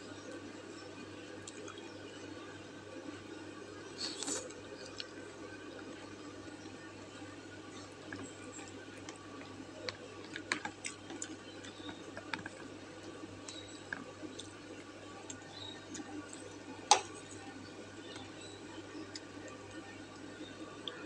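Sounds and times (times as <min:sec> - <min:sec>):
low steady hum: 0:00.0 - 0:21.0
chewing: 0:04.0 - 0:06.0, 0:07.8 - 0:12.7.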